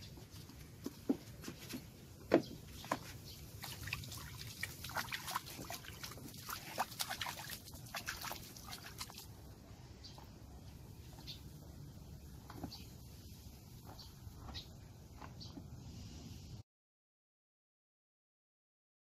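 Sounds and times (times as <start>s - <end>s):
water splashing in bucket: 2.9s - 9.3s.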